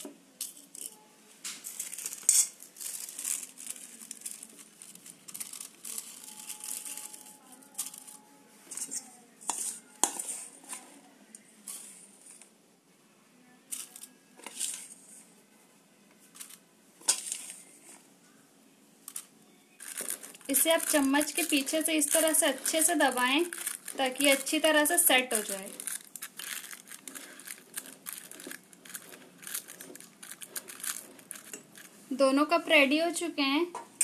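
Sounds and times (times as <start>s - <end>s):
paper crinkling: 1.5s - 10.9s, 19.8s - 32.0s
metal spoon scraping steel bowl: 2.1s - 2.6s, 8.7s - 10.8s, 17.1s - 17.6s, 27.0s - 31.9s.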